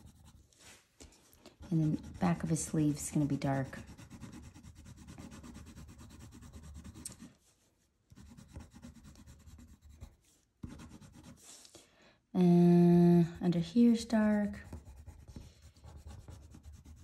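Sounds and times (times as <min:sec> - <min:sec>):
pencil shading on paper: 0:00.0 - 0:00.5, 0:01.6 - 0:07.4, 0:08.1 - 0:11.5, 0:13.8 - 0:17.0.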